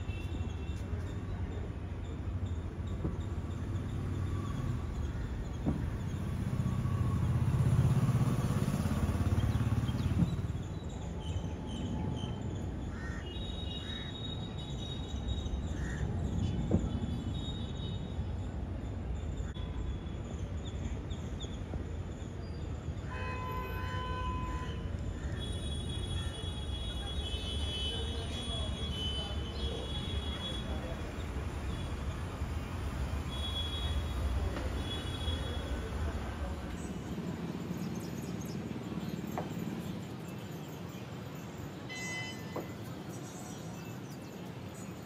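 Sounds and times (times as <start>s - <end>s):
distant city traffic rumble: 0.0s - 45.0s
vehicle horn toots: 41.9s - 42.8s.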